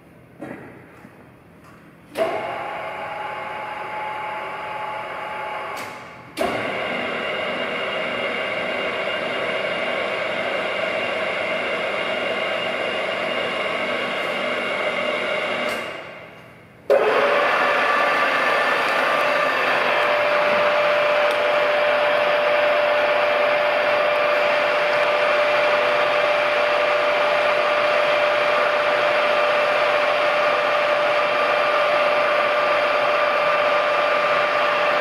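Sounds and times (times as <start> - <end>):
drilling machine motor whining: 16.9 - 35.0.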